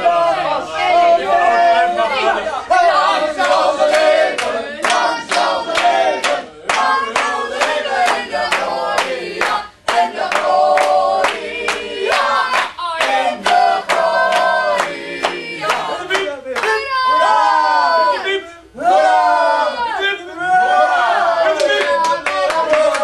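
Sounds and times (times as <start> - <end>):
group singing: 0.0 - 23.0
hands clapping on a beat: 3.4 - 16.8, 21.6 - 23.0.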